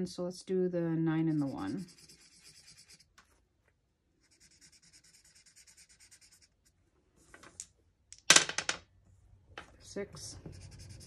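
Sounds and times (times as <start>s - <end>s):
marker scratching on paper: 1.2s - 3.1s, 4.2s - 6.6s, 10.4s - 11.0s
dice clattering on table: 7.4s - 8.9s.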